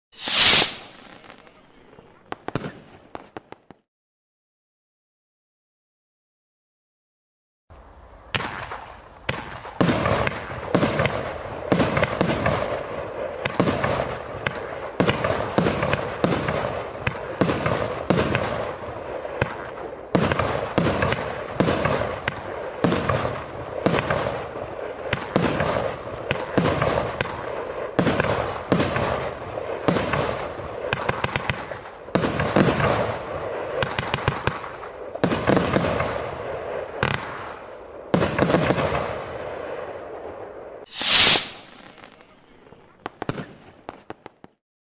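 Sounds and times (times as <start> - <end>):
firework launches and bursts: 0.1 - 1.5, 40.8 - 42.2.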